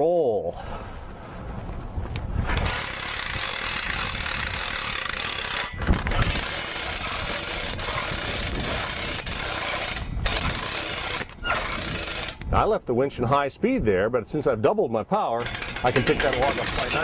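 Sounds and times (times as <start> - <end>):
hand winch ratchet clicking: 2.5 - 12.5, 15.4 - 17.0.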